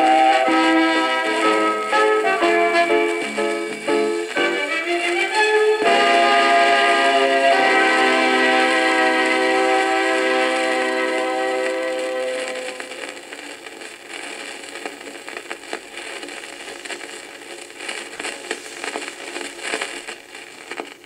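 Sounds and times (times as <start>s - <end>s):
held music chord: 0.0s - 12.9s
vinyl surface crackle and clicks: 1.2s - 6.1s, 8.0s - 21.0s.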